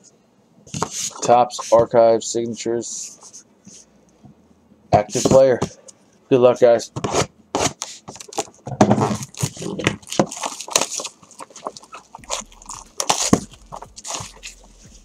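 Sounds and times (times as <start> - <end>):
plastic wrap crinkling and tearing: 8.2 - 15.0
cardboard rubbing: 8.9 - 15.0.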